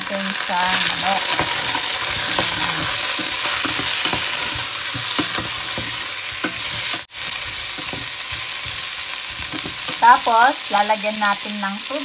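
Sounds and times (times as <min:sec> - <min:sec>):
food sizzling in hot oil: 0:00.0 - 0:12.0
spatula scraping a pot: 0:00.7 - 0:10.0.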